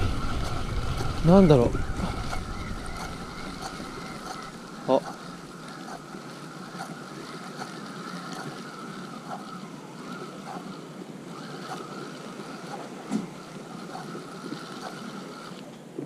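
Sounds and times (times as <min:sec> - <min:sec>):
wind on microphone: 0:00.0 - 0:04.8
sea noise: 0:00.0 - 0:16.0.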